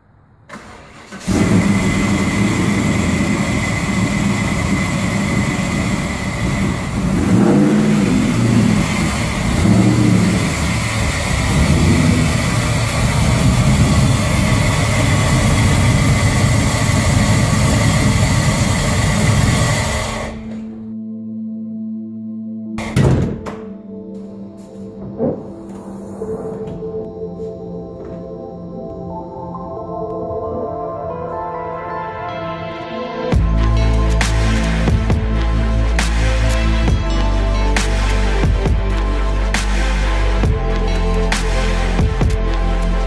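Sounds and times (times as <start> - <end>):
car engine running loudly: 0.8 - 20.6.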